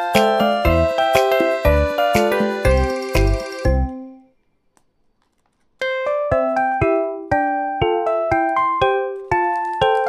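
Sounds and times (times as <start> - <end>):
keyboard tune of single notes: 0.0 - 4.3.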